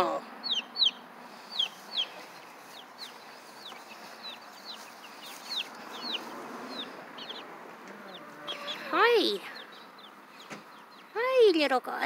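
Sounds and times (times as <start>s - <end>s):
baby chicks peeping: 0.0s - 12.0s.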